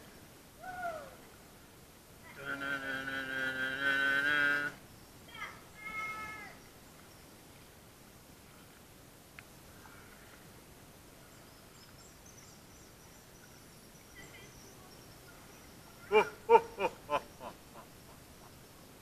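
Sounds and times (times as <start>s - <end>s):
faint high chirping: 11.2s - 19.0s.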